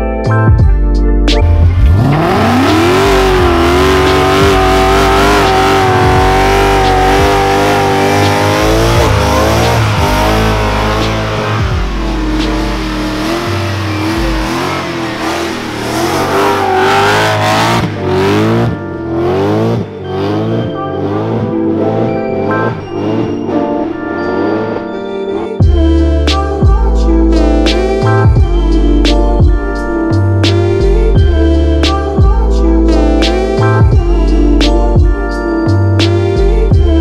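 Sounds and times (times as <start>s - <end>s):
car engine revving: 1.4s - 24.8s.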